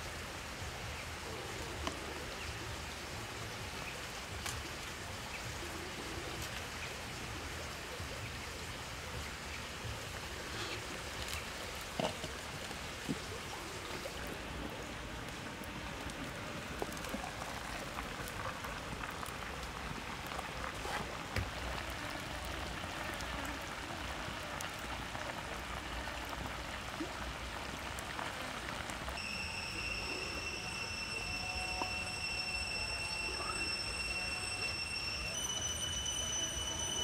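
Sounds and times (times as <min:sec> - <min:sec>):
soup bubbling in a pot: 0:00.0 - 0:37.0
wood fire crackling: 0:00.0 - 0:37.0
high-pitched whine: 0:29.2 - 0:37.0.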